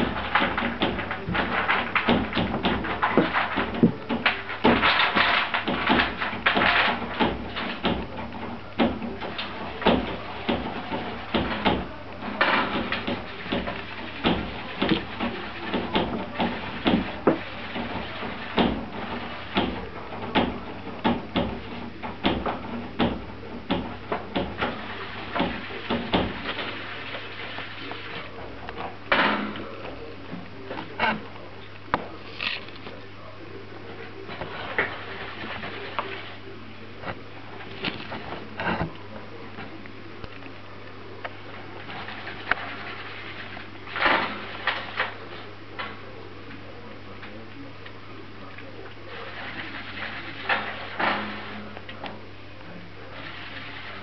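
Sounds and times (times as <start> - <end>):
squirrel digging in soil: 30.7 - 33.1.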